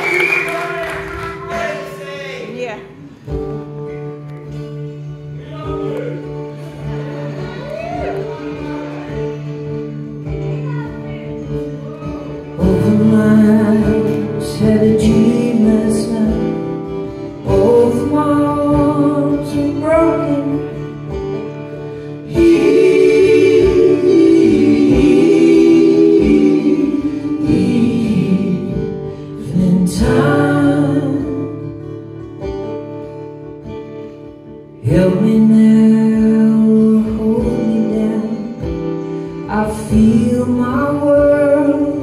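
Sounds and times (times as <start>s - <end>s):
bass guitar: 0.0s - 42.0s
strummed acoustic guitars: 0.0s - 42.0s
person singing: 12.0s - 21.0s, 22.0s - 31.7s, 34.8s - 42.0s.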